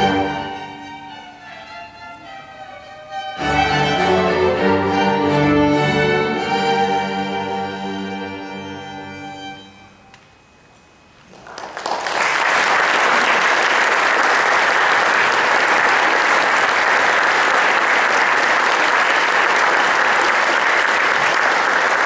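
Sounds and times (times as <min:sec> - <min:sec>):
audience applause: 0:11.3 - 0:22.0.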